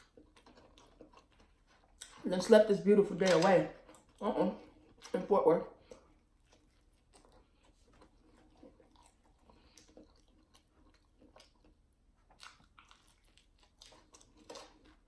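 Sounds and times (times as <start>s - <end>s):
chewing and mouth sounds: 0.0s - 15.0s
biting into sandwich: 6.0s - 15.0s.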